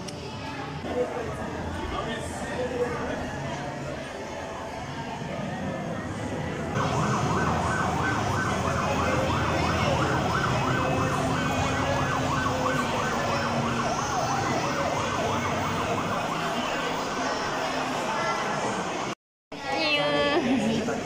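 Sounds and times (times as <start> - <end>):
toy ambulance siren wailing: 6.8 - 17.1.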